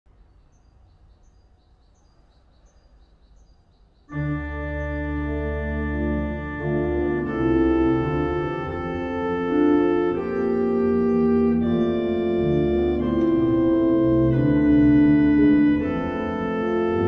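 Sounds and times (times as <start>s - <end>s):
pipe organ chords: 4.1s - 17.0s.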